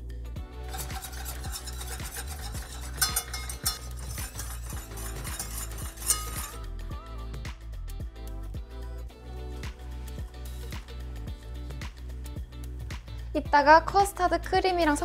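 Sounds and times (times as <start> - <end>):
background music with steady beat: 0.0 - 15.0
whisk scraping metal saucepan: 0.7 - 6.6.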